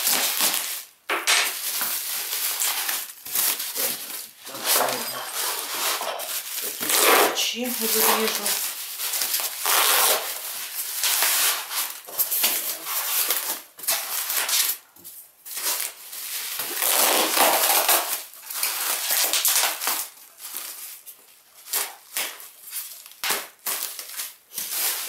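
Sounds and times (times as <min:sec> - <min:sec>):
plastic bag crinkling: 0:00.0 - 0:25.0.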